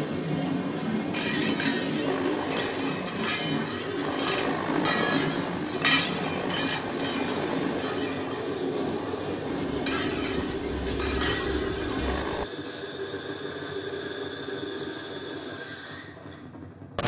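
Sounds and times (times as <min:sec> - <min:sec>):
rattling noise drone: 0:00.0 - 0:12.5.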